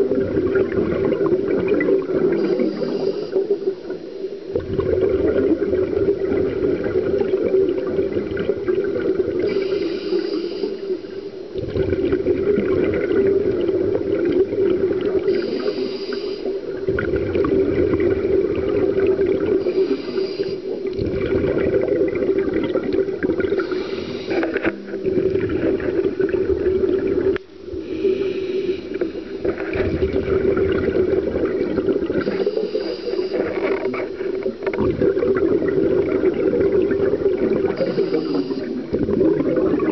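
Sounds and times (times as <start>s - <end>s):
low underwater drone: 0.0s - 39.9s
regulator breath hiss and bubbling: 0.0s - 39.9s.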